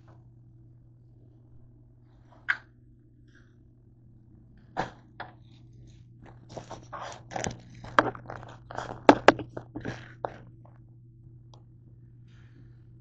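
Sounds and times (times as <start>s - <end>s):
plastic bag crinkling: 5.8s - 10.5s.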